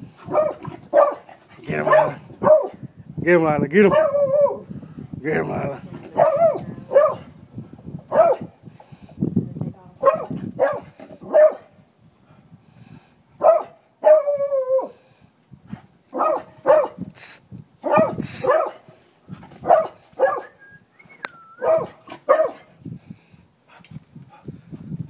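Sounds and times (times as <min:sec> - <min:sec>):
dog barking: 0:00.2 - 0:02.8, 0:03.9 - 0:04.6, 0:06.2 - 0:07.3, 0:08.1 - 0:08.5, 0:10.0 - 0:11.7, 0:13.4 - 0:14.4, 0:16.1 - 0:17.0, 0:17.8 - 0:18.9, 0:19.6 - 0:20.6, 0:21.6 - 0:22.7.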